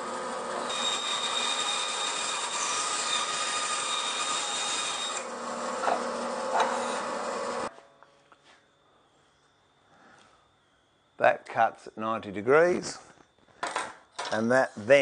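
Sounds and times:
bandsaw cutting timber: 0:00.0 - 0:07.7.

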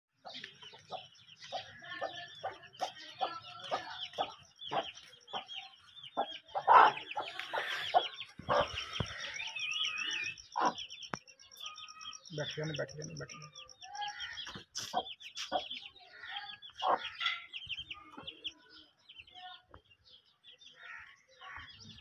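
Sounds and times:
hen clucking: 0:00.2 - 0:10.9, 0:16.6 - 0:18.3
chicks peeping: 0:00.2 - 0:20.8.

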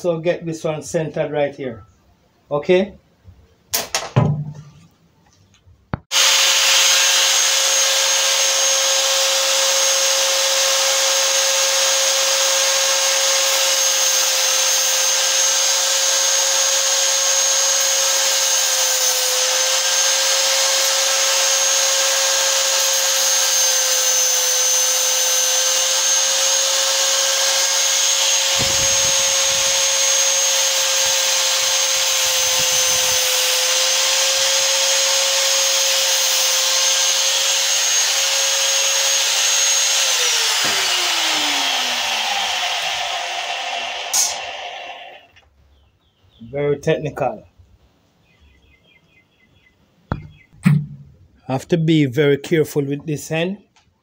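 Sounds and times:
angle grinder cutting metal pipe: 0:06.1 - 0:45.3.

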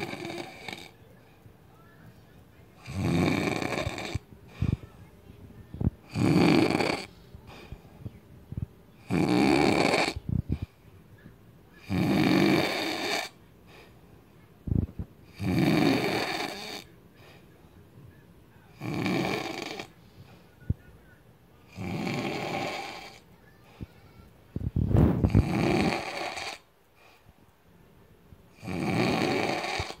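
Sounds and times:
man snoring loudly: 0:00.0 - 0:00.9, 0:02.8 - 0:04.2, 0:06.1 - 0:07.1, 0:09.0 - 0:10.2, 0:11.8 - 0:13.3, 0:15.3 - 0:16.9, 0:18.8 - 0:19.9, 0:21.7 - 0:23.2, 0:25.3 - 0:26.6, 0:28.6 - 0:30.0.

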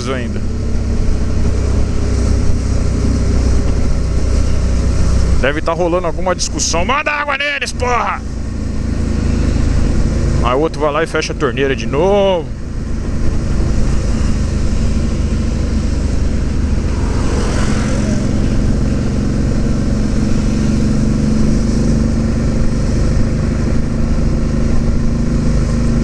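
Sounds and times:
motorcycle engine running: 0:00.0 - 0:26.0
wind rushing over microphone: 0:12.5 - 0:26.0.

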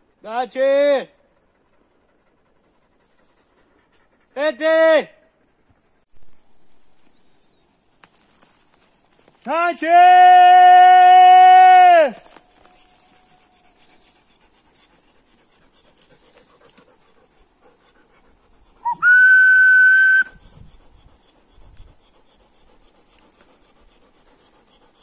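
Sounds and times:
echo of shouted call: 0:09.5 - 0:12.2
person whistling: 0:18.8 - 0:20.4.

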